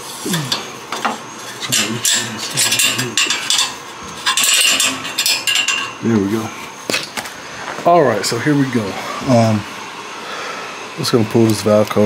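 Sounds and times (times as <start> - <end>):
metal rod scraping and clinking: 0.3 - 6.1.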